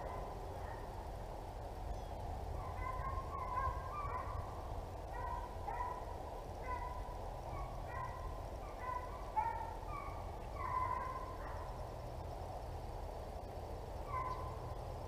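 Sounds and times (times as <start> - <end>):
distant hounds baying: 0.0 - 1.2, 2.5 - 12.3, 14.0 - 15.0
steady low rumble: 0.0 - 15.0.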